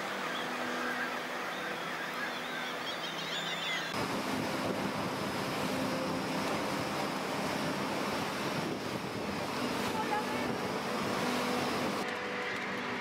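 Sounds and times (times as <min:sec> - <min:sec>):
surf: 0:00.0 - 0:13.0
wind: 0:00.0 - 0:13.0
seabird calls: 0:00.1 - 0:04.0.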